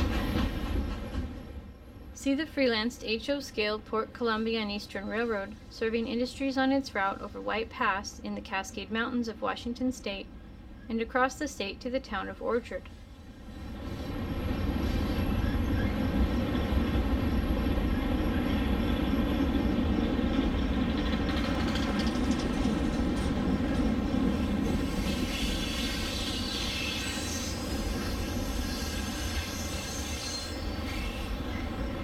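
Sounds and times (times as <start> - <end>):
model train wheels rolling: 20.9 - 23.3.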